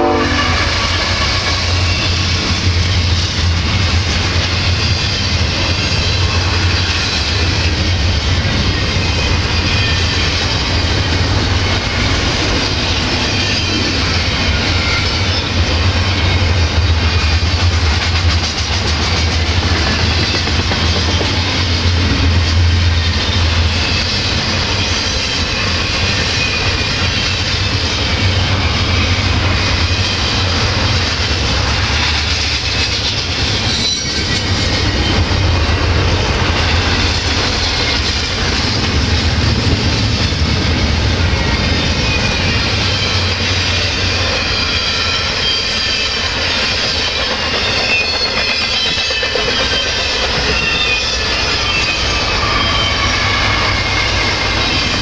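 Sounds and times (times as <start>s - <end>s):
train wheels rumbling on rails: 0.0s - 55.0s
clickety-clack over rail joints: 0.5s - 55.0s.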